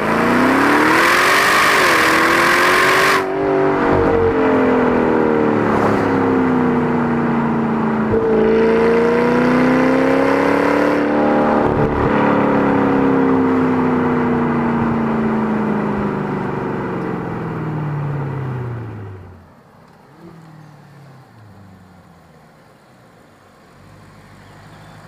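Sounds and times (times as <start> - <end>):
car engine revs falling: 0.0 - 13.9
distant car running: 0.0 - 25.0.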